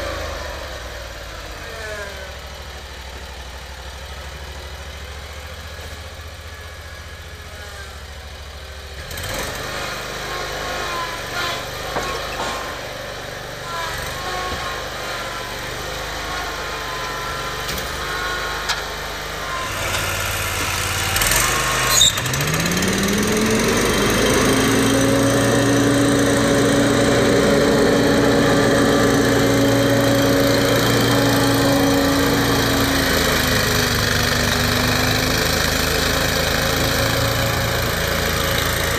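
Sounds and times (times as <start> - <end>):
mower engine running: 0.0 - 38.9
mower clunk: 10.9 - 15.5, 16.3 - 38.9
blower whine: 19.6 - 38.9.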